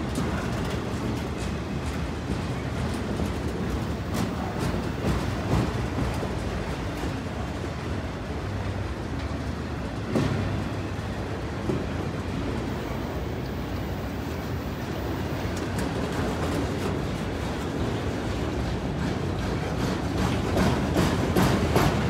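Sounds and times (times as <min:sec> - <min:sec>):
train wheels rumbling on rails: 0:00.0 - 0:22.0
sharp knocks of train cars: 0:10.0 - 0:10.9, 0:18.7 - 0:22.0.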